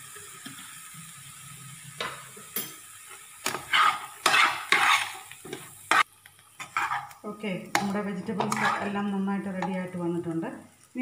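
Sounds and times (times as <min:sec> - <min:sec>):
faint steady sizzle: 0:00.0 - 0:11.0
spatula stirring in frying pan: 0:02.0 - 0:10.0
spatula scraping against pan: 0:03.4 - 0:09.8.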